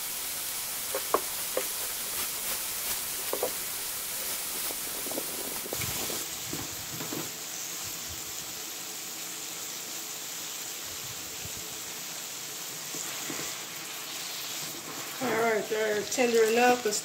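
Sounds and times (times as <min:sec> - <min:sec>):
vegetables sizzling in oil: 0:00.0 - 0:17.0.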